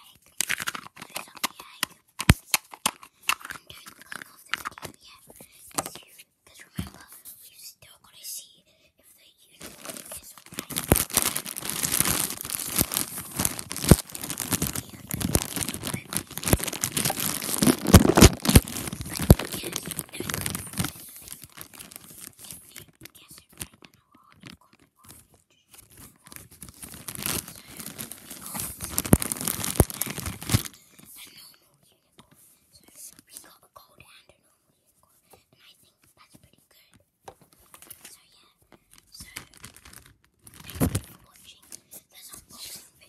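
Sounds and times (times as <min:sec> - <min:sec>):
plastic wrapper crinkling: 0:00.3 - 0:05.0, 0:09.6 - 0:31.1, 0:38.9 - 0:41.4.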